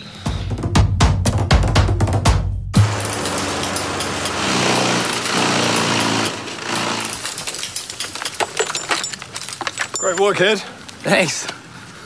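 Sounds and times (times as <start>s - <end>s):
power equipment engine revving: 2.8s - 7.4s.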